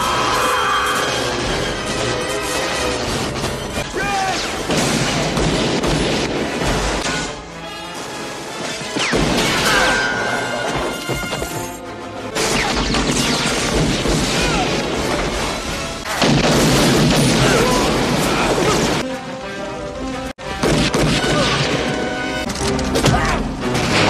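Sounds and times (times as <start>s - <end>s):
dramatic film score: 0.0s - 24.0s
gunfire: 4.4s - 7.2s, 12.4s - 15.2s, 16.1s - 18.9s, 20.6s - 22.0s
booms and crashes: 12.4s - 19.0s.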